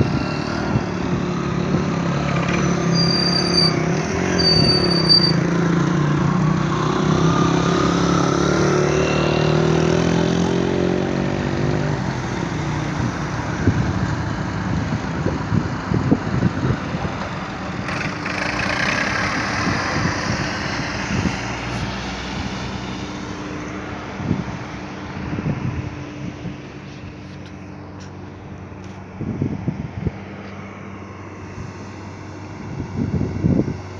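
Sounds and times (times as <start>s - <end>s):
tractor rumbling: 0.0s - 8.7s, 9.6s - 33.9s
engine drone: 0.0s - 33.9s
car passing: 16.9s - 27.9s.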